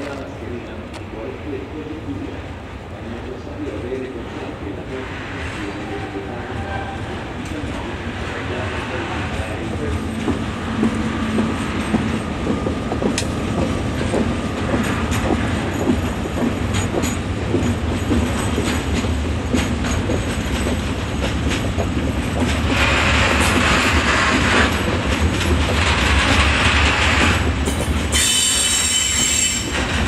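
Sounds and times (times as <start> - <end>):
train wheels clicking over rail joints: 7.2 - 30.0.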